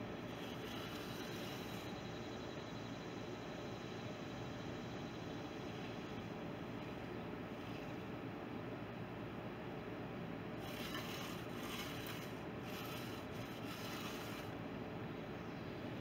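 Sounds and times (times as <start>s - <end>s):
low background noise: 0.0s - 16.0s
hand tool scraping concrete: 0.3s - 1.9s, 10.6s - 14.6s.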